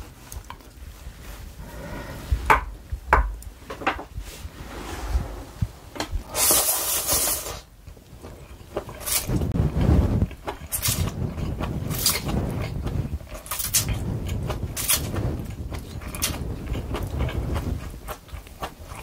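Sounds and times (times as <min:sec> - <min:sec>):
loud noodle slurp: 0:04.6 - 0:07.7.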